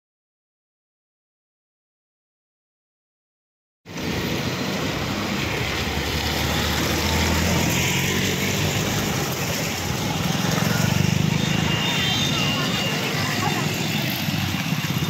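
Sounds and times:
motorcycle engines passing: 0:03.9 - 0:15.0
road noise: 0:03.9 - 0:15.0.

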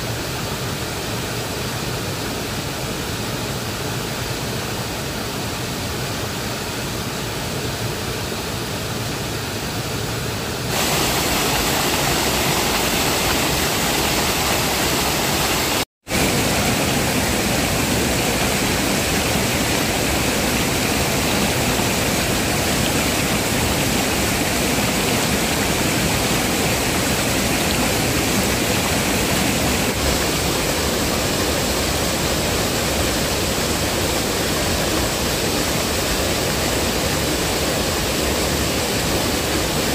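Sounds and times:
waterfall rushing over rocks: 0:00.0 - 0:39.9.

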